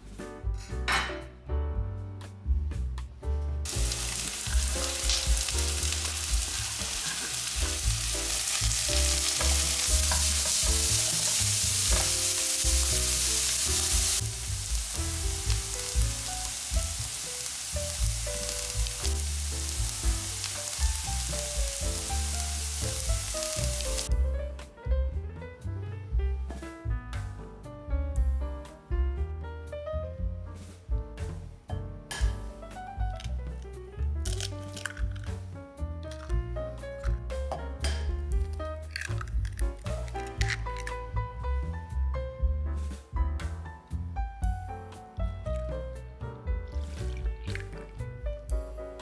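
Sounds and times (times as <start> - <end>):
background music: 0.0 - 49.0
food sizzling in hot oil: 3.7 - 24.1.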